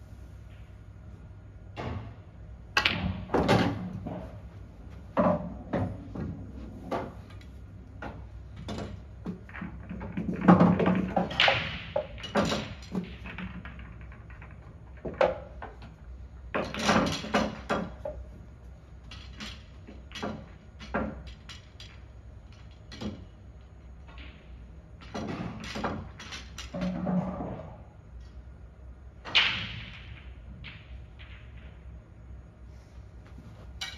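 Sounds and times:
pool balls clacking together: 0:01.7 - 0:28.4.

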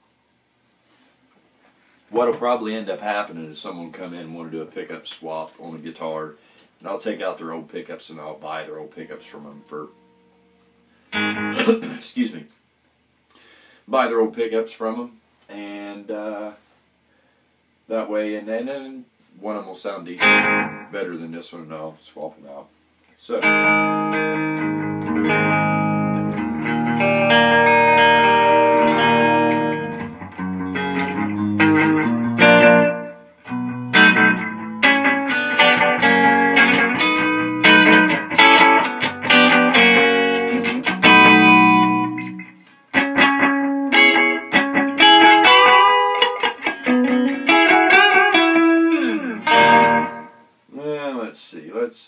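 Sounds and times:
electric guitar through amplifier: 0:09.3 - 0:11.7, 0:20.2 - 0:20.9, 0:23.4 - 0:50.5.

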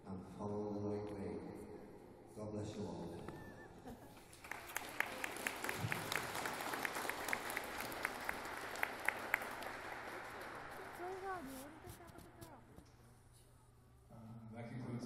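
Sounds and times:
audience applauding: 0:04.2 - 0:12.0
sharp close claps: 0:04.3 - 0:12.9.

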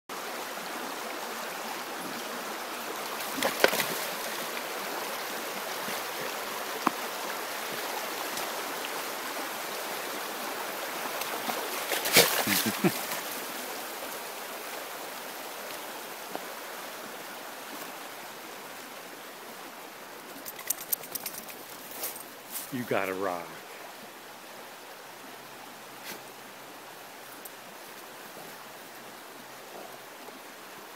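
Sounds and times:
stream rushing over rocks: 0:00.1 - 0:30.9
dog splashing through water: 0:03.2 - 0:04.4, 0:11.4 - 0:13.2.

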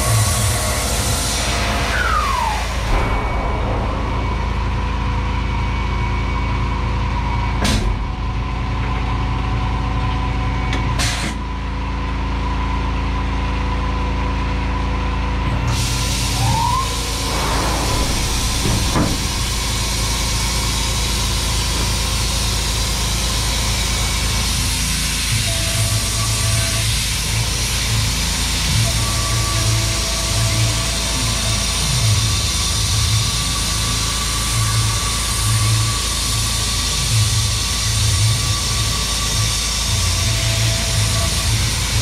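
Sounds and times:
spindle whine rising: 0:00.0 - 0:10.9, 0:12.2 - 0:42.0
mill machine hum: 0:00.0 - 0:42.0
air hiss: 0:15.7 - 0:42.0.

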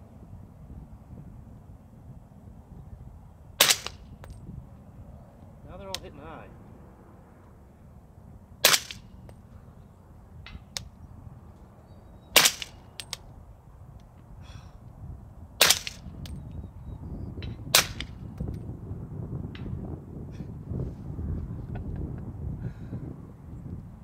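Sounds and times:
wind buffeting microphone: 0:00.0 - 0:24.0
suppressed rifle shots: 0:03.6 - 0:04.0, 0:08.6 - 0:09.0, 0:12.4 - 0:12.8, 0:15.6 - 0:16.0.

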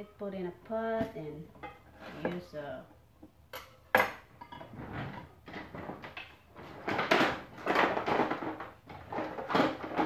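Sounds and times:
dishes clinking: 0:03.5 - 0:04.7.

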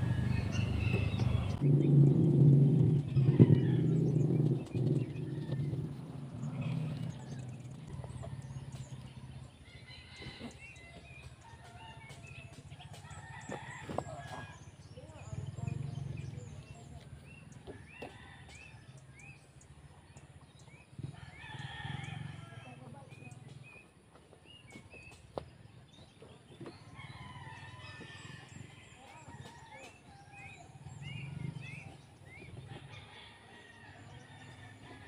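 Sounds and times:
roosters crowing: 0:00.0 - 0:01.9, 0:02.8 - 0:16.2, 0:17.3 - 0:23.3, 0:26.6 - 0:35.0
faint low rumble: 0:00.0 - 0:09.7.

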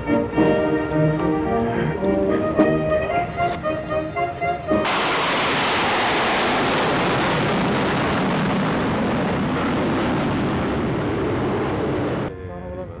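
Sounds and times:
jets roaring overhead: 0:00.0 - 0:13.0.

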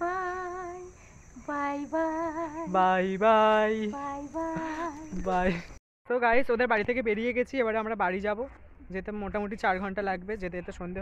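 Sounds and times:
lower second voice singing: 0:00.0 - 0:05.6
woman singing unaccompanied: 0:00.0 - 0:05.6.

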